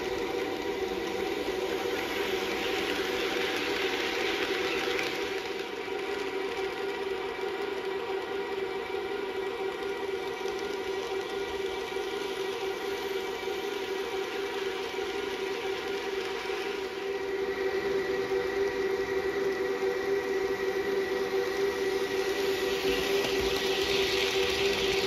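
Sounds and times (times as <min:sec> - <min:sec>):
wheels running on track: 0:00.0 - 0:07.8, 0:20.6 - 0:25.0
model train motor whine: 0:00.0 - 0:25.0.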